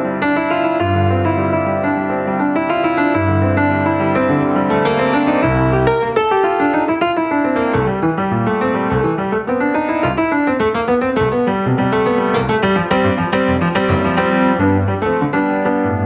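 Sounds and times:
piano playing: 0.0 - 16.0
deep piano bass note: 6.9 - 16.0.

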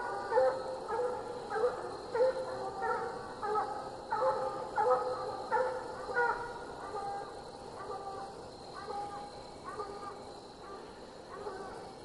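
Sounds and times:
hounds barking: 0.0 - 12.0.

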